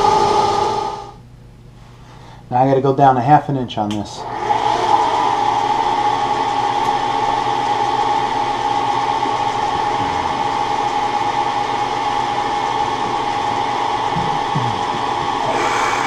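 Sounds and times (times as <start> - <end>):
milling machine spindle humming: 4.2 - 16.0.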